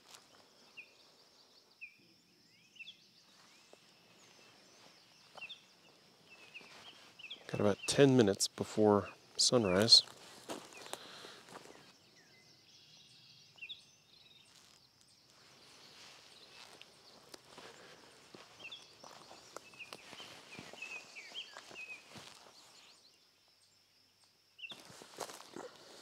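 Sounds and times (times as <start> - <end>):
small birds chirping: 0.0 - 26.0
footsteps on bare rock: 3.4 - 7.5, 9.7 - 11.9, 15.4 - 22.9, 24.7 - 26.0.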